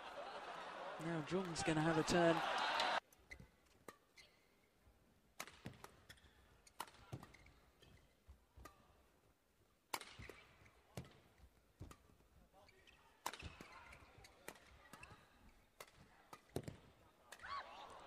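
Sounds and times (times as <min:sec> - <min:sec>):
rackets hitting shuttlecock: 0:05.4 - 0:09.0, 0:09.9 - 0:12.2, 0:12.8 - 0:18.0.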